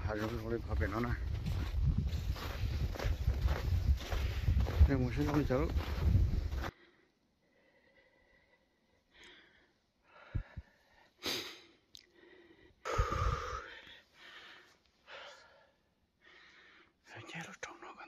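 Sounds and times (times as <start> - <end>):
person breathing: 6.5 - 17.0.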